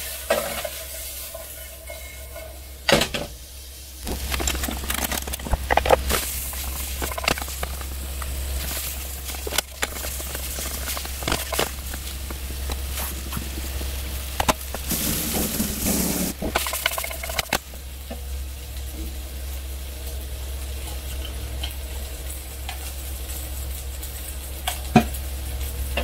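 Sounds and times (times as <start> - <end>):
vegetables sizzling in a pan: 0.0 - 26.0
low hum: 3.8 - 18.0
spatula scraping and tapping: 4.0 - 15.0.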